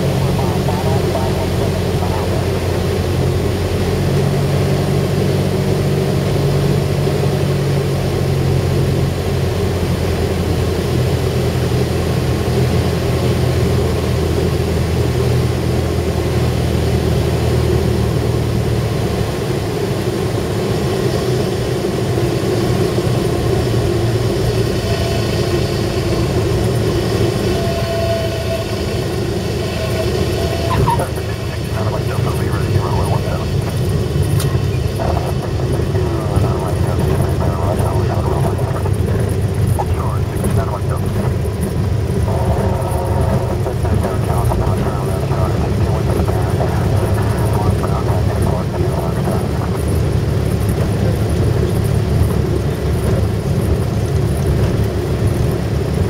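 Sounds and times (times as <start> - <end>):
aircraft engine and propeller: 0.0 - 56.0.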